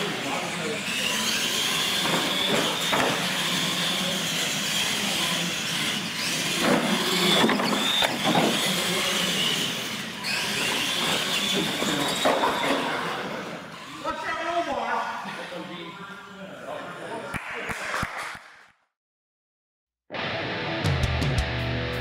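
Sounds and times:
toy truck electric motors whining: 0:00.0 - 0:17.0.

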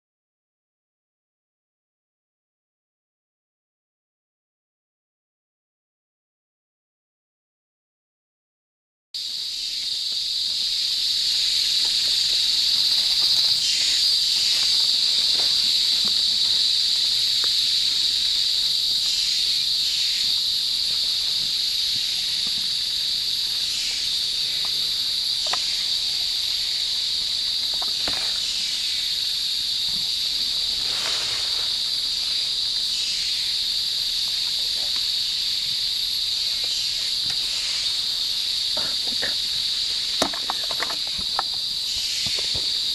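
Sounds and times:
insects droning: 0:09.2 - 0:42.9.

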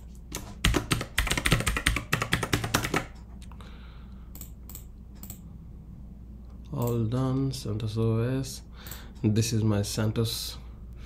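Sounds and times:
typing on computer keyboard: 0:00.3 - 0:03.2.

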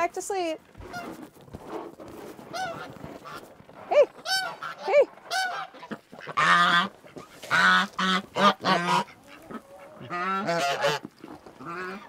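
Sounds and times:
geese honking: 0:02.4 - 0:12.0.

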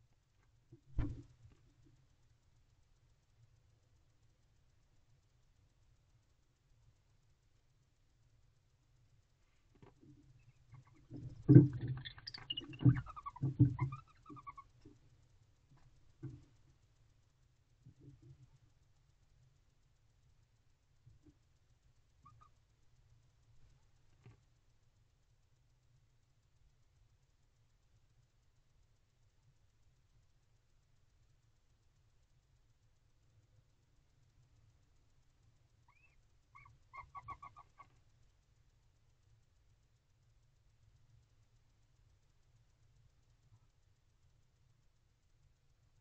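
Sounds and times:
faint microphone rumble: 0:00.7 - 0:01.7
barn owl chirping call: 0:10.4 - 0:14.9, 0:22.2 - 0:22.6, 0:35.8 - 0:38.0.

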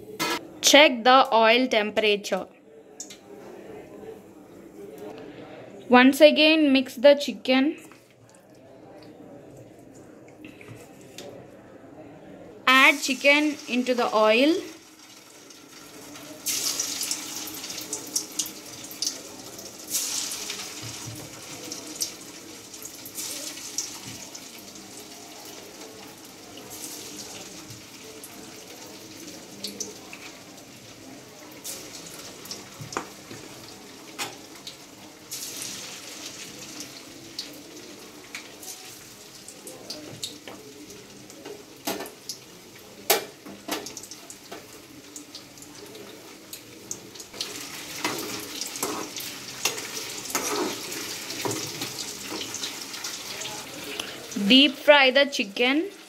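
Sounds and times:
chicken sizzling in hot oil: 0:12.7 - 0:56.0.

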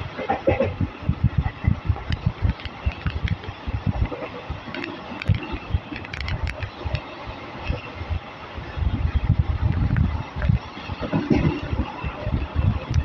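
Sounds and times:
steady hiss of moving train: 0:00.0 - 0:13.0
sharp clicks and rattles: 0:01.4 - 0:07.1.

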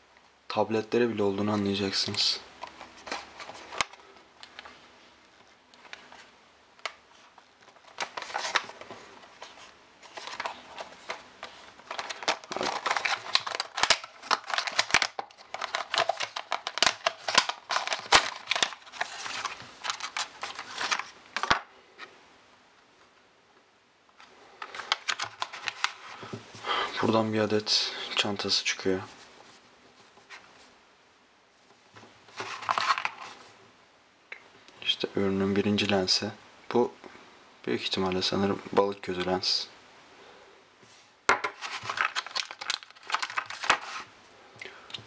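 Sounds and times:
cardboard and plastic packaging rustling: 0:01.6 - 0:04.8, 0:05.4 - 0:21.6, 0:24.2 - 0:30.7, 0:31.7 - 0:33.5, 0:41.3 - 0:44.1.

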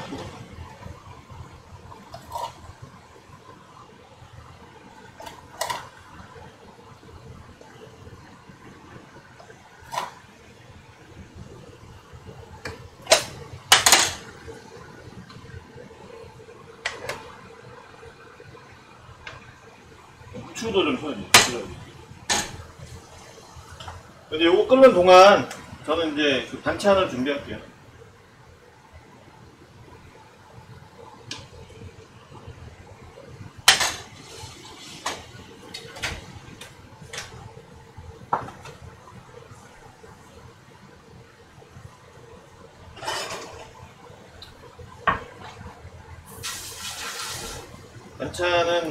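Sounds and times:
low steady hum: 0:00.0 - 0:48.9
utensils knocking and set down: 0:13.1 - 0:14.3, 0:33.7 - 0:34.1.

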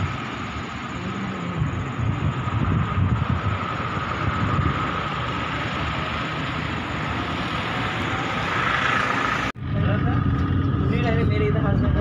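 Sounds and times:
road traffic rumble: 0:00.0 - 0:12.0
vehicle engine running close by: 0:00.0 - 0:12.0.

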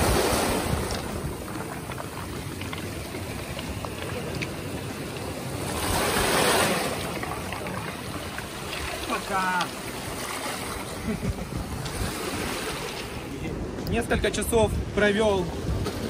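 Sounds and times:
waves washing over pebble beach: 0:00.0 - 0:11.0.

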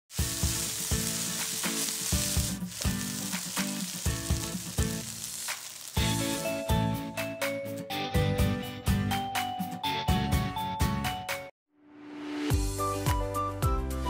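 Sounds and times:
spatula stirring in a pan: 0:00.1 - 0:06.6
fried rice sizzling in a pan: 0:00.1 - 0:06.8
background music with a beat: 0:12.5 - 0:14.0.

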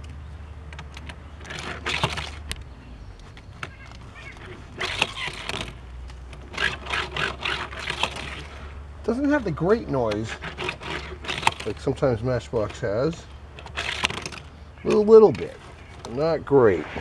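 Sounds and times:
toy truck wheels rolling on plastic track: 0:01.0 - 0:02.6, 0:03.7 - 0:14.5.

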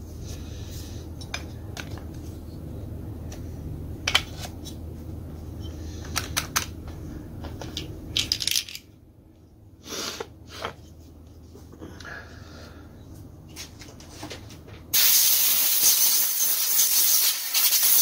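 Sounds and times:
low background hum: 0:00.0 - 0:15.0
metallic clicks of small parts: 0:07.6 - 0:08.9.

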